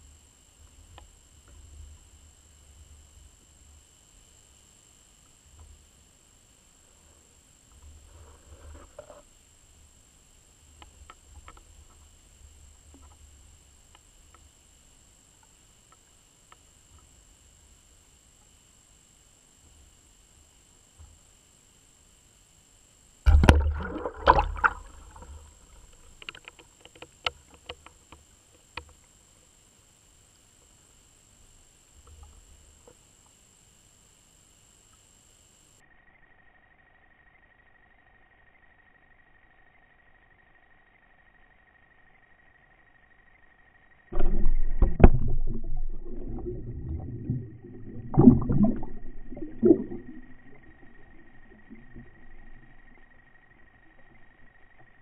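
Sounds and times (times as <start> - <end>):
underwater thumps of surging water: 23.3 - 27.8, 44.2 - 53.1.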